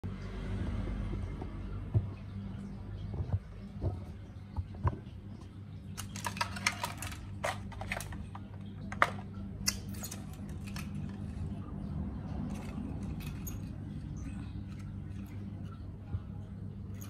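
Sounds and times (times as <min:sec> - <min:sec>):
steady low hum: 0:00.0 - 0:17.0
plastic clicks and rattles: 0:06.0 - 0:11.3.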